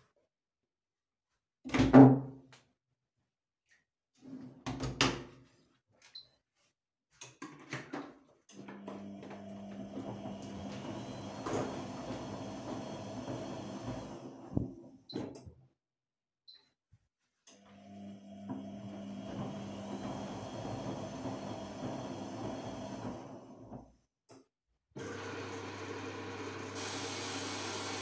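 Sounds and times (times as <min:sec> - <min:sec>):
washing machine humming and rushing: 0:08.6 - 0:15.0, 0:17.7 - 0:23.9, 0:25.0 - 0:28.0.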